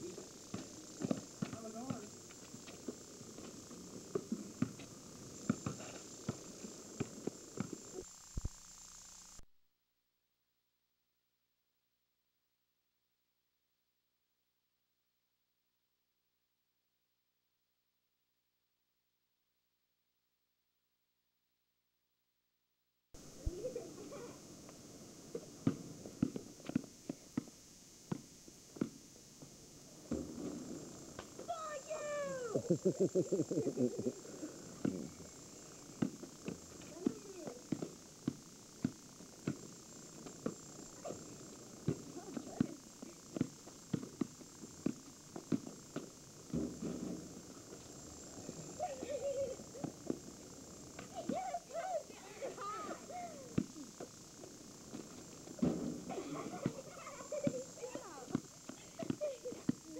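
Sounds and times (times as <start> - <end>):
high-pitched recording hiss: 0.0 - 9.6, 23.2 - 59.9
basketball bouncing on pavement: 0.5 - 7.8, 25.6 - 29.0, 30.1 - 30.6, 36.0 - 41.2, 41.8 - 47.3, 56.6 - 59.9.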